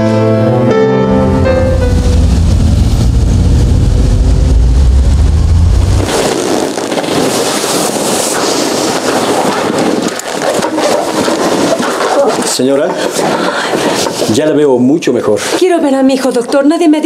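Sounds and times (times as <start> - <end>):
road traffic rumble: 1.1 - 8.8.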